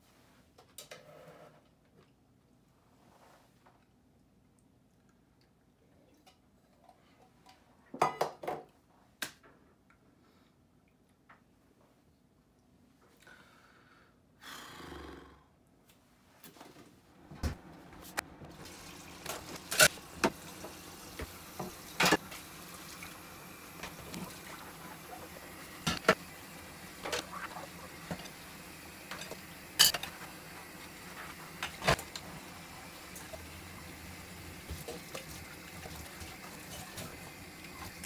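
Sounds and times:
crockery clinking: 29.2 - 30.1.

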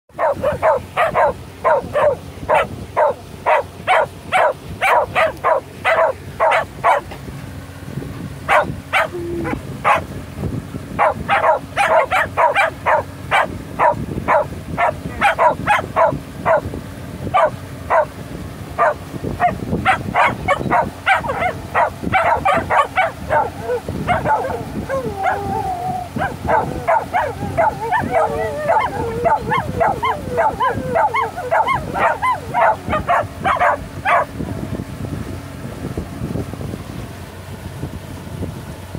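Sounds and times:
dogs yipping barks: 0.1 - 7.2, 8.5 - 10.1, 11.0 - 16.7, 17.3 - 18.2, 18.8 - 34.3.

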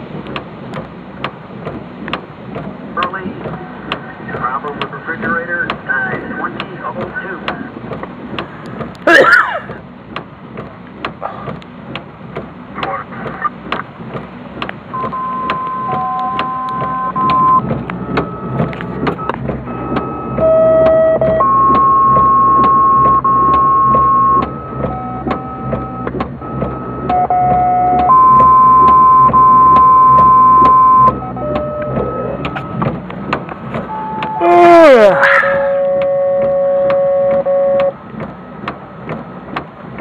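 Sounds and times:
two-tone radio paging tones: 14.9 - 32.9, 33.8 - 34.6, 35.6 - 38.0.

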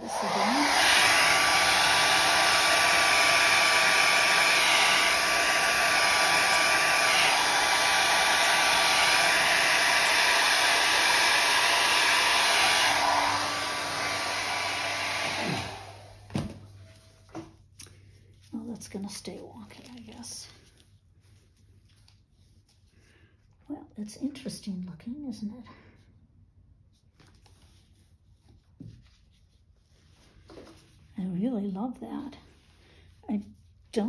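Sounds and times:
hair dryer blowing: 0.0 - 17.5.

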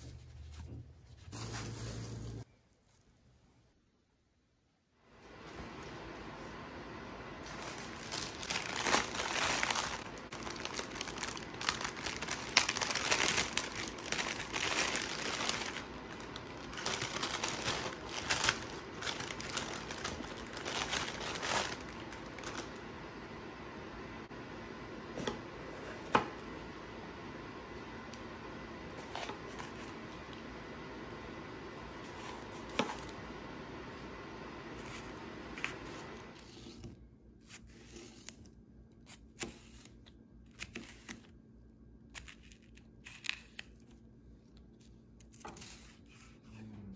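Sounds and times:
plastic bag crinkling: 7.4 - 22.8.

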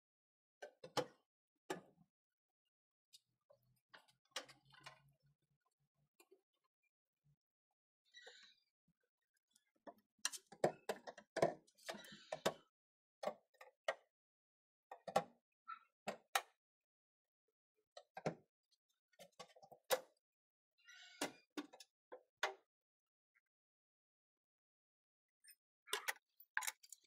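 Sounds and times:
metal clasps clicking: 26.0 - 27.0.

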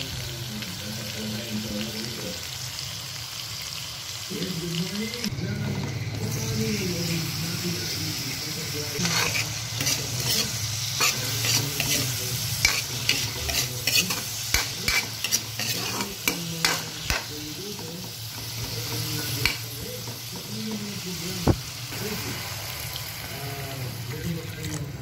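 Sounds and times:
food sizzling in a pan: 0.0 - 25.0
spatula scraping a metal pan: 9.0 - 17.2.

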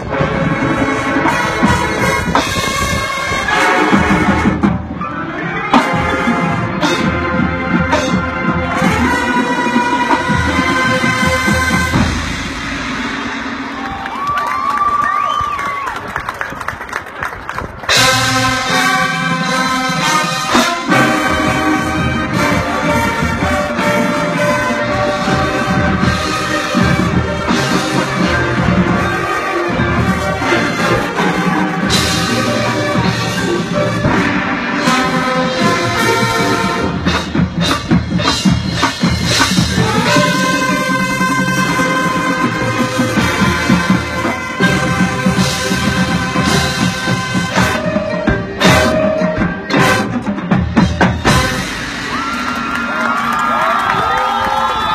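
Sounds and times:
brass sustained chords: 0.0 - 14.0, 17.9 - 50.4
marching band playing: 0.0 - 54.9
sharp percussion hits: 10.2 - 14.2.

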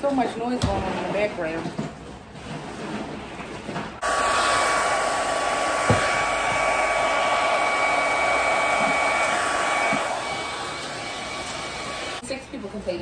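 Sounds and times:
hair dryer blowing: 4.0 - 12.2.

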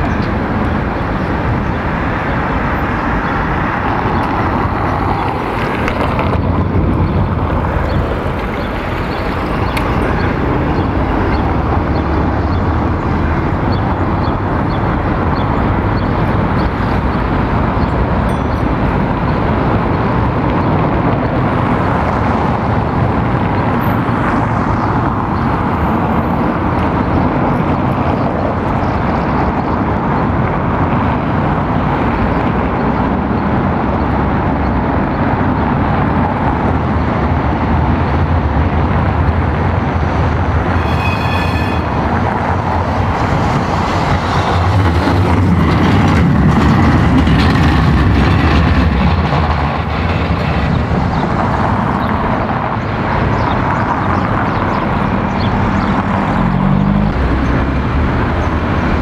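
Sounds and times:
street noise: 0.0 - 59.0
tram rolling past: 0.0 - 59.0
brief high ringing: 40.8 - 42.0.

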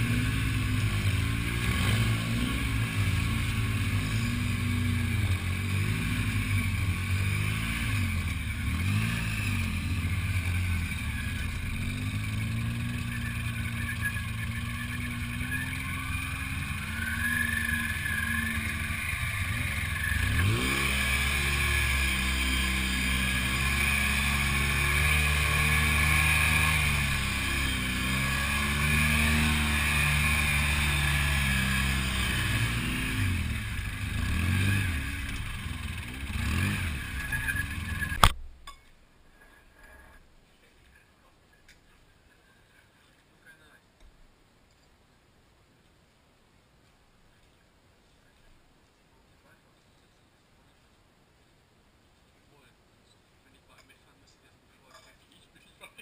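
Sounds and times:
buggy engine revving: 0.0 - 38.4.

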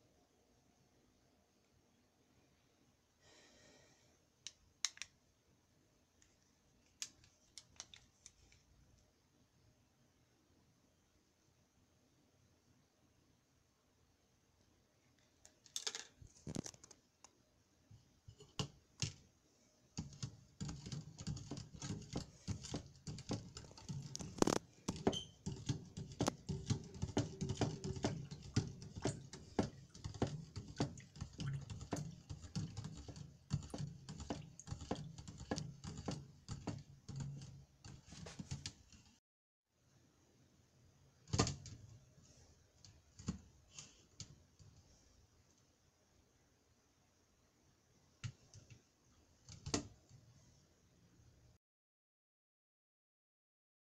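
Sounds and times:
metal spoon stirring in plastic cup: 20.0 - 38.7.

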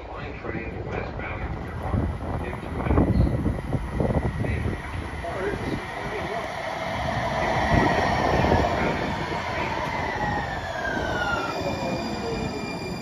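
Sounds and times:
train wheels rumbling on rails: 0.0 - 13.0
train whine falling in pitch: 3.3 - 13.0.

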